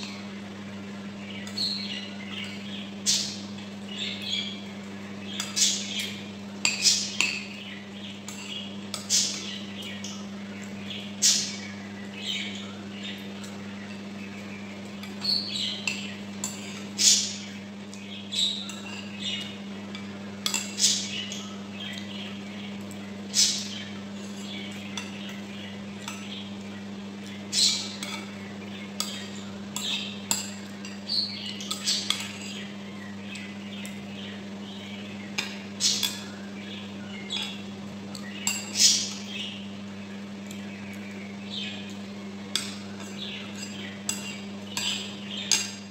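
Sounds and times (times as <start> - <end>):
steady low hum: 0.0 - 45.9
cutlery clinking on ceramic bowls: 19.9 - 20.9, 27.9 - 28.4, 29.0 - 32.6, 42.5 - 45.8.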